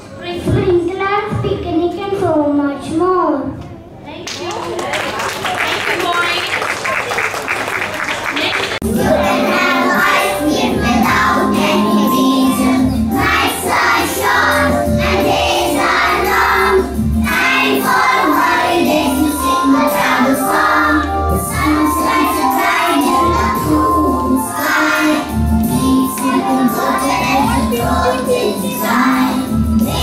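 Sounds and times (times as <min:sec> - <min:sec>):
children singing in chorus: 0:08.8 - 0:30.0.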